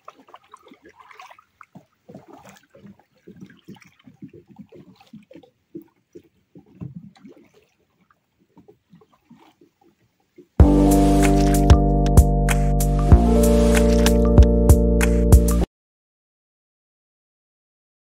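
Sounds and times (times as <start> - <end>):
lake water lapping: 0.0 - 12.1, 13.1 - 14.4.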